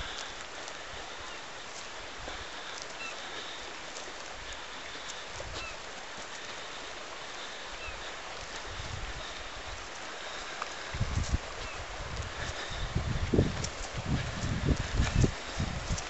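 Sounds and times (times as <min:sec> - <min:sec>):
wind buffeting microphone: 0:07.9 - 0:10.0, 0:10.8 - 0:16.0.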